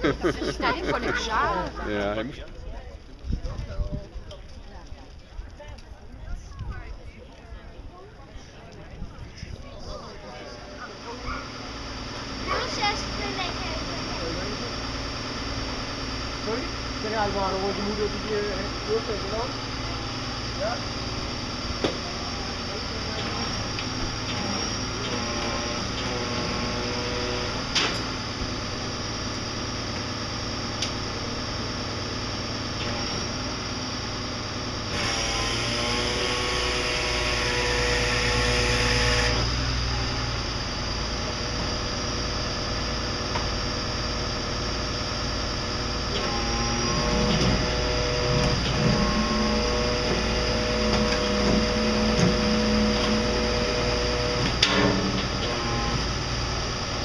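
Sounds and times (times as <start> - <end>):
murmur of voices: 0.0 - 27.0
vehicle engine running: 0.0 - 57.0.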